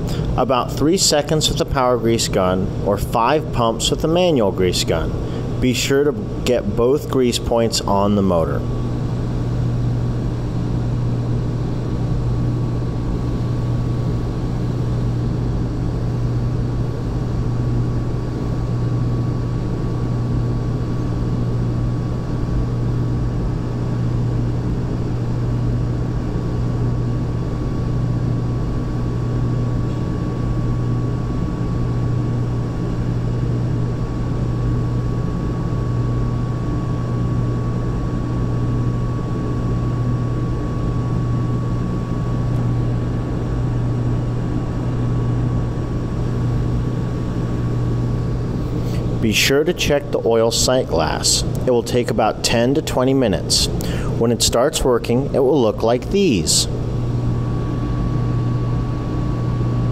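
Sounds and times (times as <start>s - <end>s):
industrial machinery hum: 0.0s - 59.9s.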